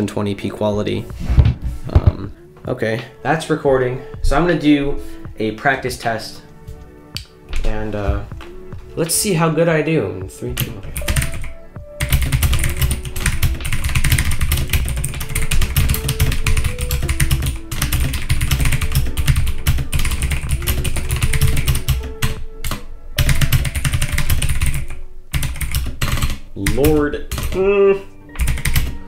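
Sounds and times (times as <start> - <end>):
clicky mechanical keyboard typing: 10.6 - 27.6, 28.4 - 29.0.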